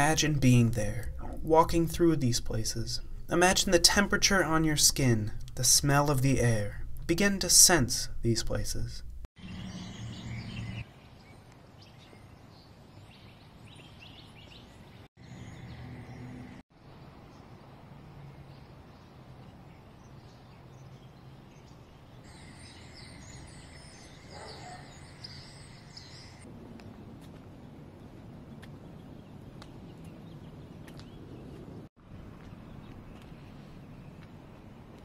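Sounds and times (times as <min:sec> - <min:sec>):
small birds chirping: 0:09.4 - 0:35.0.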